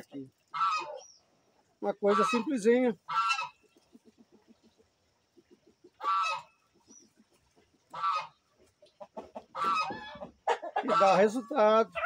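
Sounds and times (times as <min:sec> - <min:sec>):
poultry honking calls: 0:00.5 - 0:01.0, 0:02.0 - 0:03.6, 0:06.0 - 0:06.5, 0:07.9 - 0:08.4, 0:09.5 - 0:12.0.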